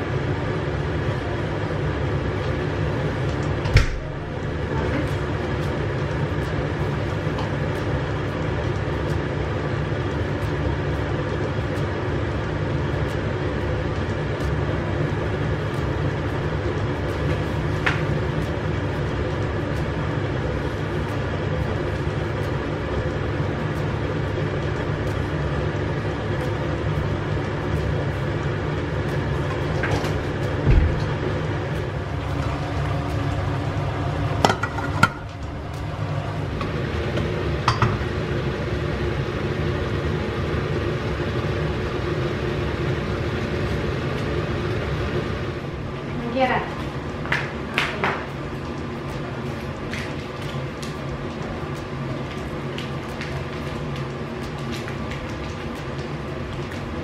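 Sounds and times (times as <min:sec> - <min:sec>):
mechanical hum: 0:00.0 - 0:57.0
low thump: 0:30.1 - 0:31.6.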